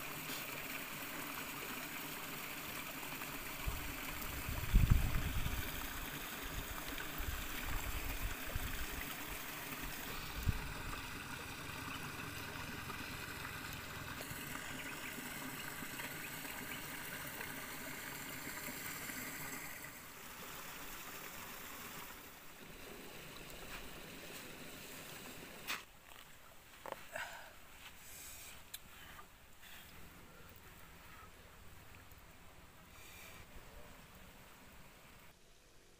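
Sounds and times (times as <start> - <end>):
stream trickling over rocks: 0.0 - 26.8.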